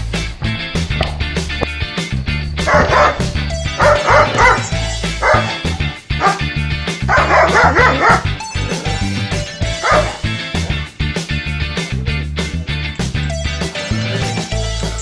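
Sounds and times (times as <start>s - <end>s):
music with steady beat: 0.0s - 15.0s
dog barking: 2.6s - 6.5s, 7.1s - 8.4s, 9.7s - 10.3s.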